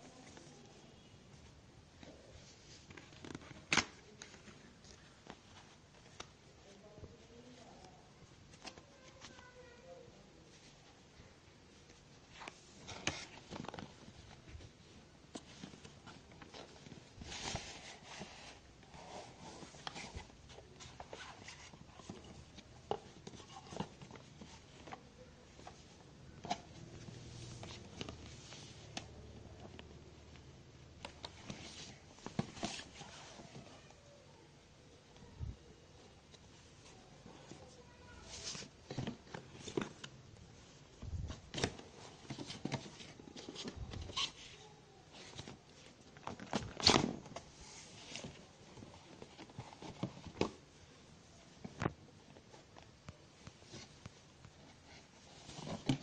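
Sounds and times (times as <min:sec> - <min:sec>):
cardboard boxes rustling: 0:12.2 - 0:30.1, 0:30.8 - 0:33.8, 0:36.2 - 0:56.0.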